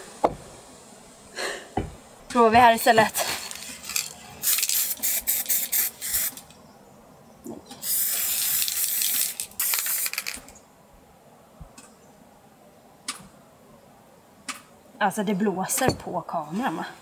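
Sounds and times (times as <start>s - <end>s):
spray paint can hissing: 3.4s - 6.4s, 7.8s - 10.5s.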